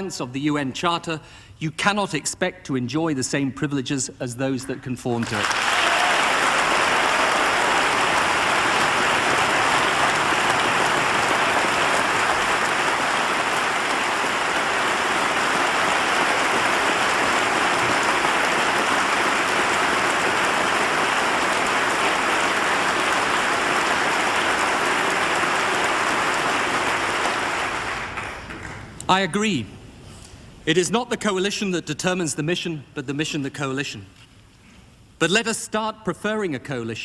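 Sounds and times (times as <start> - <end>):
large audience applauding: 5.2 - 28.5.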